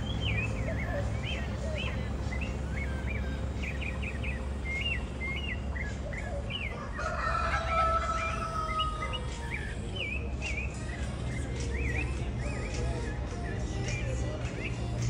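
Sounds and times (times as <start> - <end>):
songbirds chirping: 0.0 - 15.0
rooster crowing: 6.6 - 9.2.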